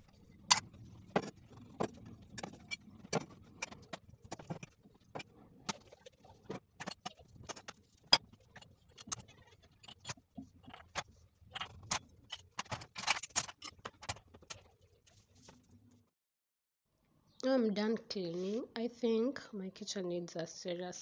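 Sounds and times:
kitchenware clatter: 11.6s - 14.6s.

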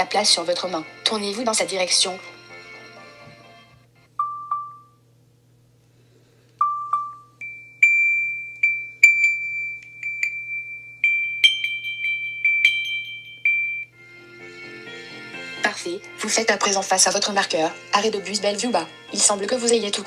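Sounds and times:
chime-like pings: 6.6s - 14.0s.

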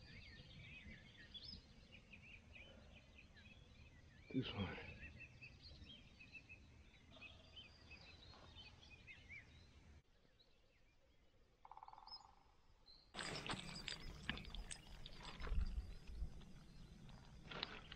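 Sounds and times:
small birds chirping: 0.0s - 17.9s
handling noise rustles and knocks: 13.2s - 17.9s.

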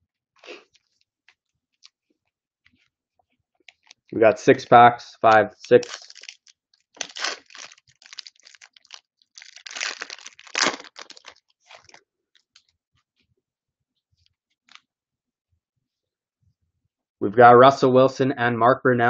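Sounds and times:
foil wrapper crinkling and tearing: 5.3s - 12.7s.

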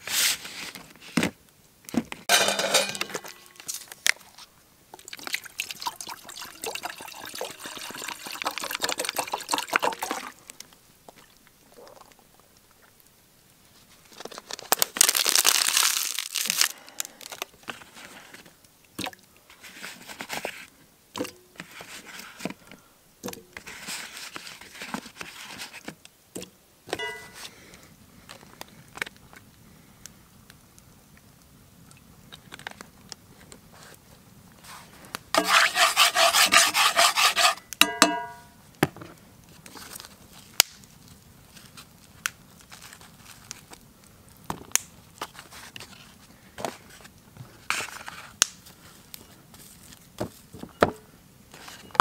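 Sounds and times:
water poured into pot: 5.0s - 10.4s
knife scraping potato on plate: 35.4s - 37.7s.

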